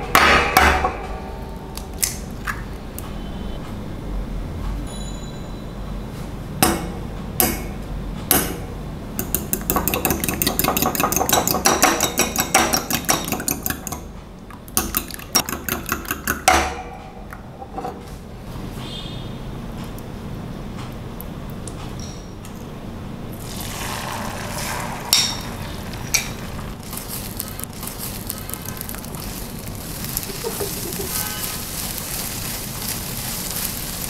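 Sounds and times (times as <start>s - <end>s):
utensil clinking against glass bowl: 9.2s - 14.1s, 14.8s - 16.8s.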